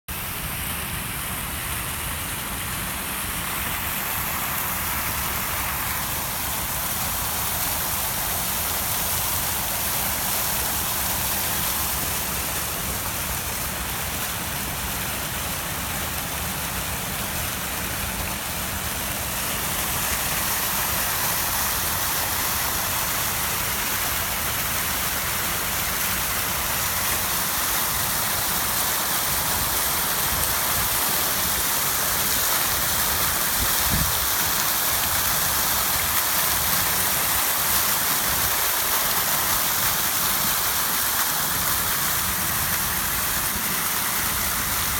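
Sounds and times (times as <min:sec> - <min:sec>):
fountain jets splashing into pool: 0:00.1 - 0:44.9.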